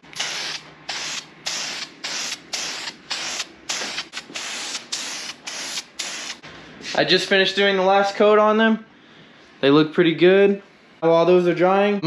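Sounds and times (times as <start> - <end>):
spray paint can hissing: 0.1 - 6.4.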